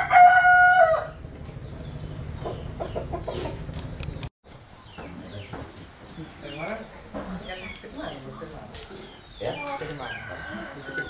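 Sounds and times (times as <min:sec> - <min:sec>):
rooster crowing: 0:00.0 - 0:01.2, 0:09.9 - 0:11.0
chickens clucking: 0:01.2 - 0:04.2, 0:04.9 - 0:11.0.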